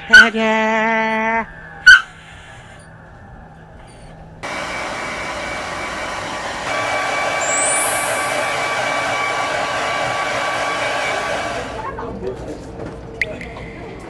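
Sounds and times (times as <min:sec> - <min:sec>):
high whine rising in pitch: 0:00.0 - 0:11.9
blow dryer running: 0:04.4 - 0:12.2.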